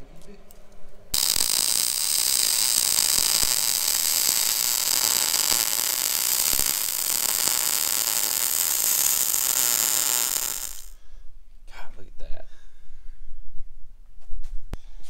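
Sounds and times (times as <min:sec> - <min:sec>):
welding arc crackling: 0:01.2 - 0:11.0.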